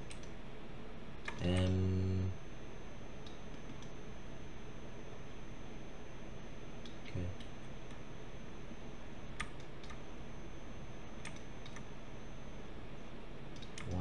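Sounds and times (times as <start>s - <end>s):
computer mouse and keyboard clicks: 1.2s - 1.8s, 11.2s - 11.9s, 13.6s - 14.0s.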